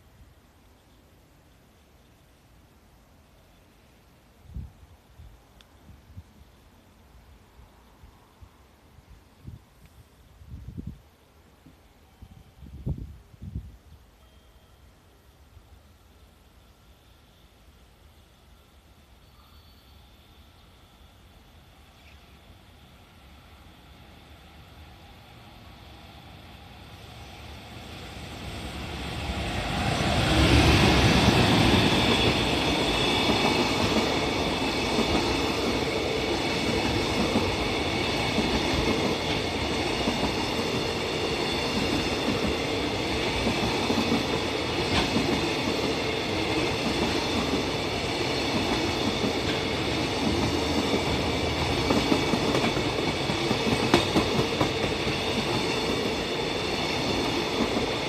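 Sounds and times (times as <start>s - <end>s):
freight train passing: 14.2s - 58.0s.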